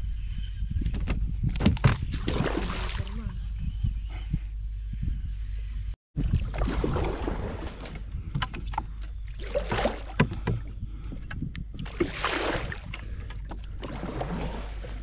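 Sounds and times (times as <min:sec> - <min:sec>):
oars pulling through water: 0:06.2 - 0:15.0.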